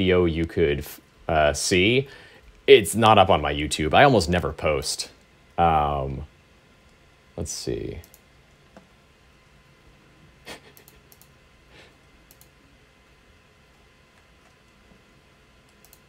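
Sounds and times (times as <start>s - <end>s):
computer clicks and taps: 10.7s - 11.4s, 12.2s - 12.6s, 15.6s - 16.0s.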